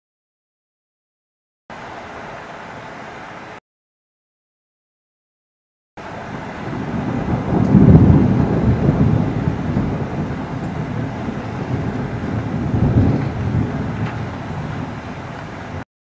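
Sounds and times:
thunder rumbling: 6.0 - 15.8.

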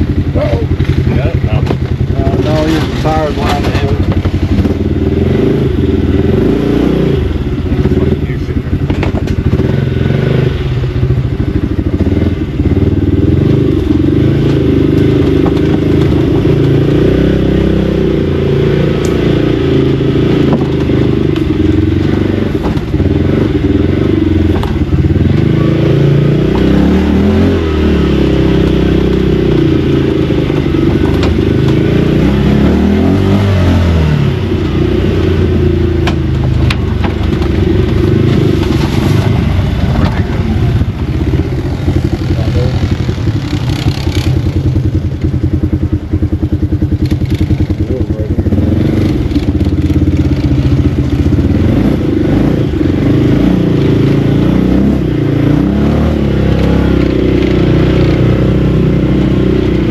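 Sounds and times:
four-wheeler engine revving: 0.0 - 59.9.

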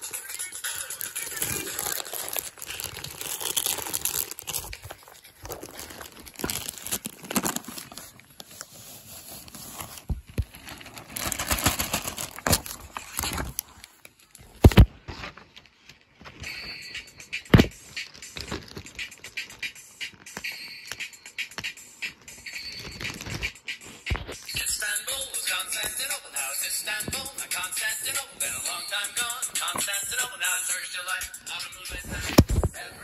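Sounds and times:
plastic bags crinkling: 0.0 - 14.8, 17.9 - 20.7, 22.6 - 23.5.

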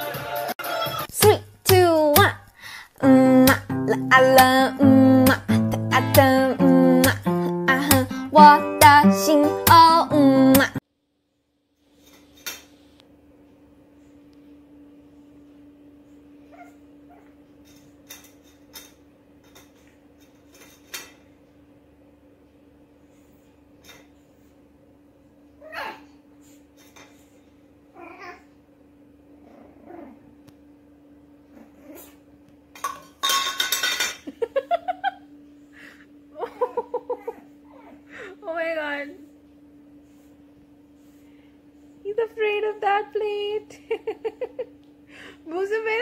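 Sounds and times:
faint steady hum: 1.2 - 46.0
puppy whimpering: 16.5 - 17.4, 25.6 - 26.1, 29.4 - 30.3, 37.1 - 38.1
metal bowl clinking on tile: 32.8 - 34.3.

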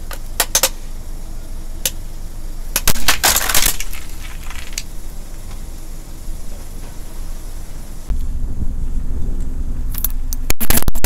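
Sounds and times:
low rumble: 0.9 - 10.5
plastic cracking under car tyre: 2.8 - 4.9.

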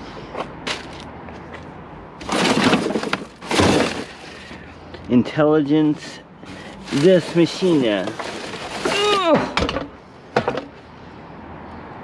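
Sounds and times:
plastic bags rustling and crackling: 2.2 - 4.5, 6.7 - 9.2.

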